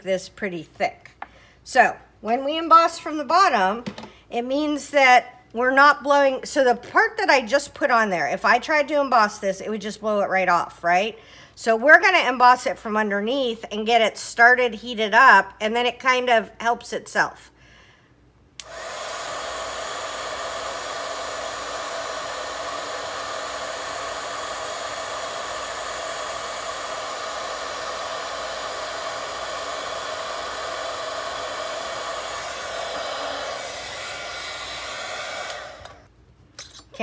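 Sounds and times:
heat gun fan whirring: 18.6s - 36.1s.

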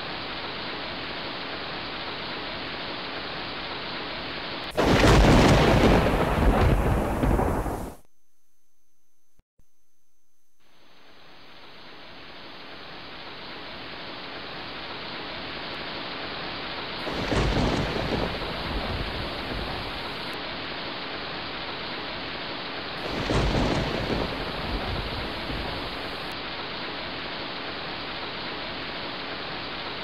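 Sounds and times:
steady outdoor hiss: 0.0s - 8.0s, 10.6s - 30.0s
heavy rumbling wind gusts: 4.8s - 8.0s, 17.0s - 20.4s, 23.0s - 26.4s
wind buffeting microphone: 17.2s - 20.3s.

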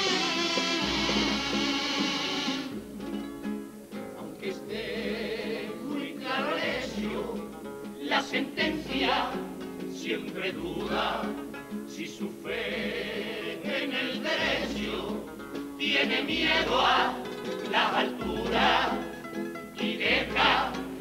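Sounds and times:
strummed guitars: 0.0s - 21.0s
male choir singing in harmony: 4.1s - 19.2s, 19.8s - 21.0s.

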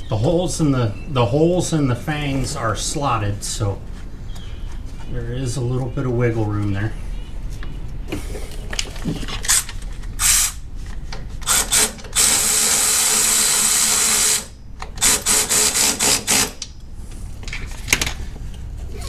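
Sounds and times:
cordless power driver running bolt: 9.4s - 10.6s, 11.4s - 16.7s.

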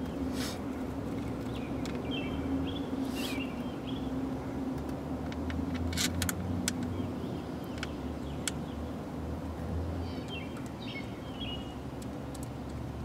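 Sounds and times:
bird chirping: 1.4s - 4.2s, 10.0s - 11.8s.

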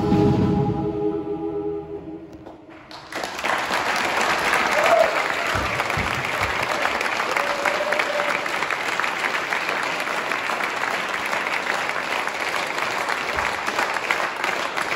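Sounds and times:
audience applauding: 2.4s - 14.9s.

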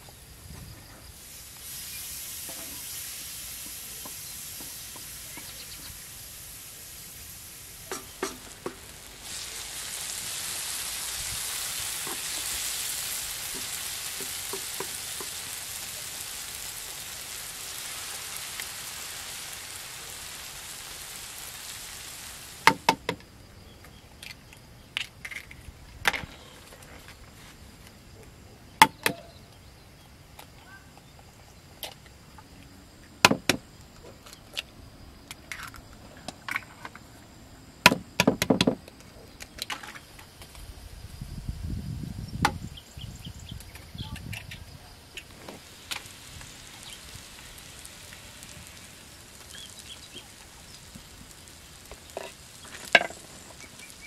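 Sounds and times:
vegetables sizzling in a pan: 0.0s - 23.9s, 39.6s - 54.0s.

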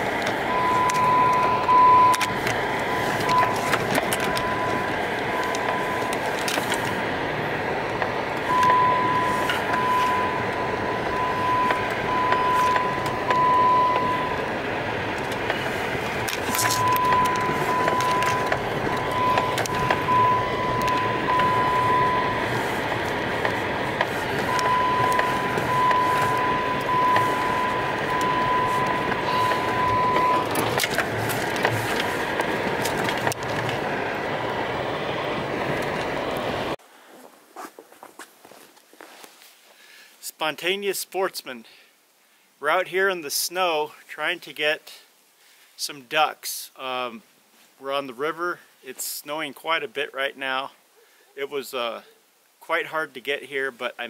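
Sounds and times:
vehicle cab noise: 0.0s - 39.4s
high electronic beep: 0.5s - 2.3s, 2.9s - 6.3s, 8.5s - 14.4s, 16.7s - 22.4s, 24.5s - 30.7s.

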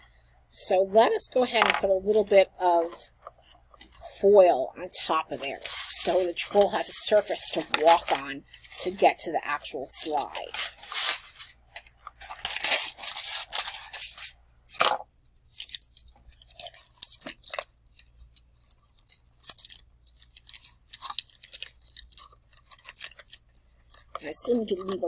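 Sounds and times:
aluminium foil crinkling: 5.0s - 25.0s.

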